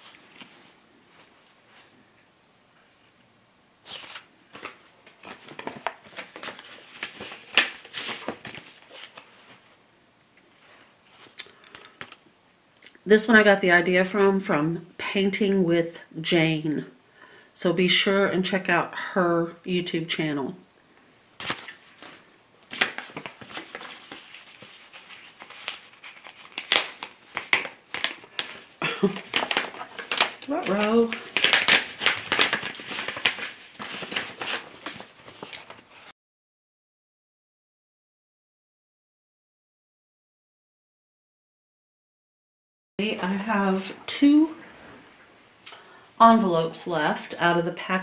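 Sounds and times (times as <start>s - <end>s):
cards and envelopes rustling: 0.0s - 1.9s, 3.8s - 9.8s, 10.5s - 12.2s, 21.4s - 36.1s.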